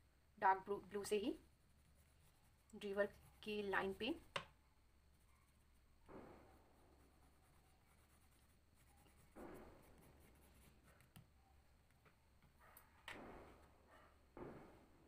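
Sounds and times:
crayon scratching on paper: 1.0 - 4.4, 6.8 - 11.3.

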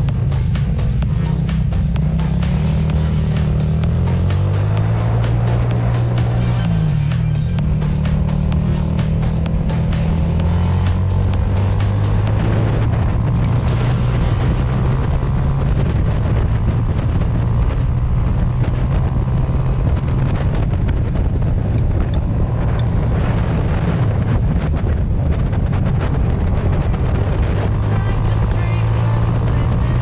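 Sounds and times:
wind buffeting microphone: 12.2 - 29.9.

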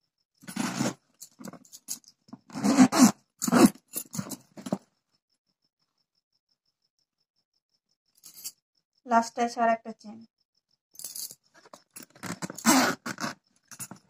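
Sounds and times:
zipper scraping: 0.4 - 1.7, 2.4 - 4.8, 11.6 - 14.0.

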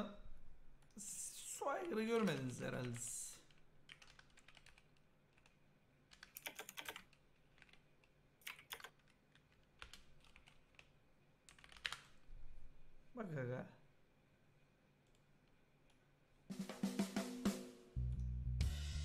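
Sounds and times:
keyboard typing: 1.8 - 10.9, 11.5 - 12.2.

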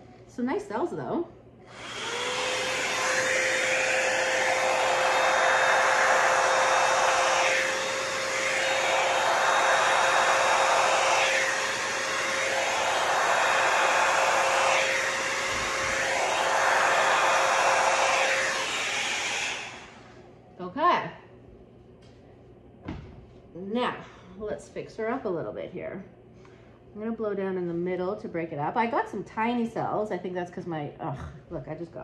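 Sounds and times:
hair dryer motor whine: 1.6 - 20.3.

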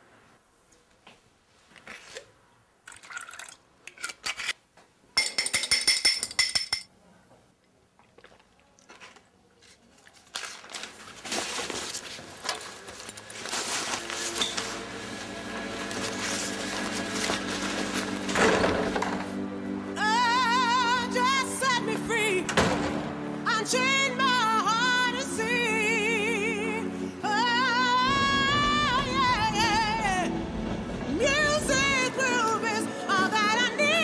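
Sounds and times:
liquid pouring into glass: 2.9 - 3.6
glassware clinking: 5.2 - 6.9
music: 13.5 - 34.0.

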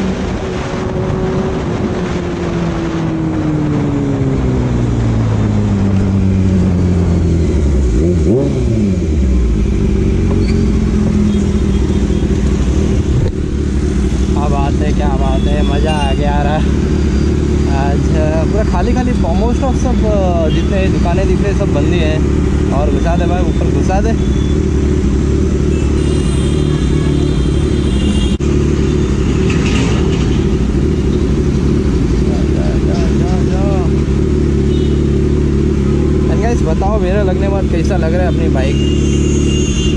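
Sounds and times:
motorcycle engine revving: 0.0 - 39.9
motorcycle engine idling: 30.4 - 39.9.

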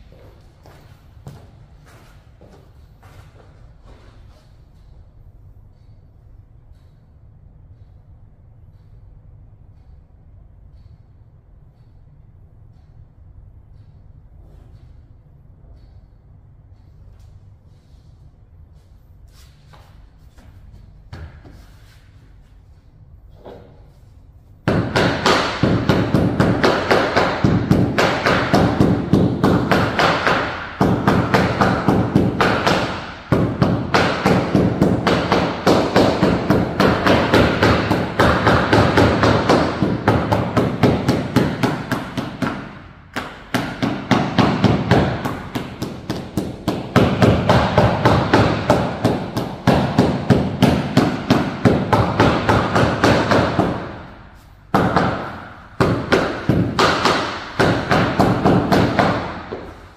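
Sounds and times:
hammer blows: 24.6 - 59.9.

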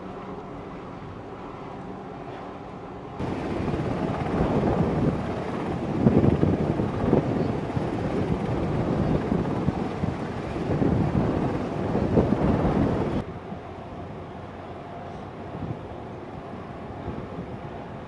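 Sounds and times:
steady hum: 0.0 - 14.8
wind buffeting microphone: 3.2 - 13.2.

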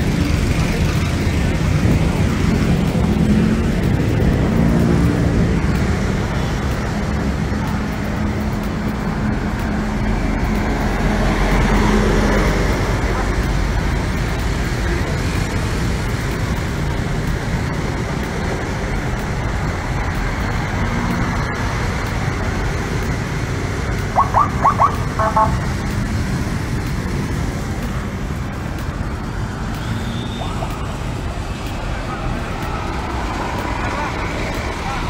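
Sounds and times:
bus passing: 0.0 - 35.0
city street traffic: 0.0 - 35.0
motorcycles passing: 0.0 - 35.0
horn toot: 24.2 - 25.7.

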